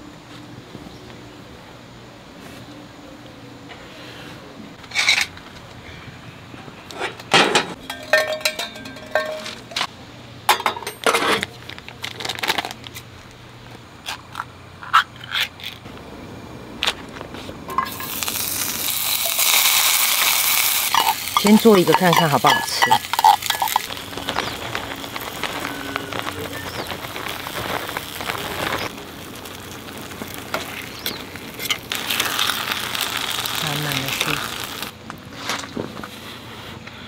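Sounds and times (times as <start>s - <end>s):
metal utensils on pan: 7.0s - 9.9s, 10.5s - 11.5s, 17.7s - 18.2s, 20.6s - 24.0s
plastic packet crinkling: 11.6s - 13.0s, 17.9s - 30.9s
food sizzling in hot fat: 17.6s - 35.0s.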